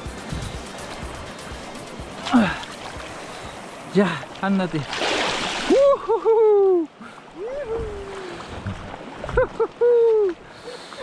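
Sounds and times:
fish splashing in water: 4.8 - 5.8.

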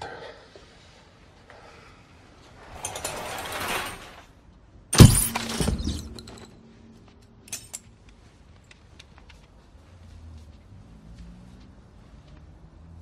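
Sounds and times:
clattering: 2.3 - 4.4, 5.0 - 8.1.

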